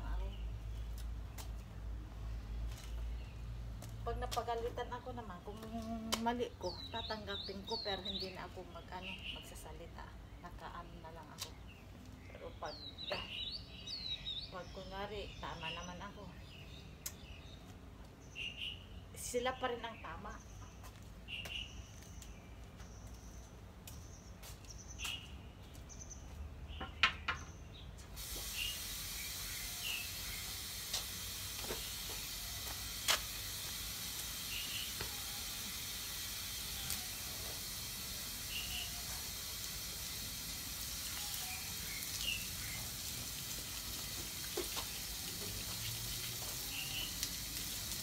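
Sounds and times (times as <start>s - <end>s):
garden hose spraying water: 0.0s - 9.4s, 28.0s - 48.0s.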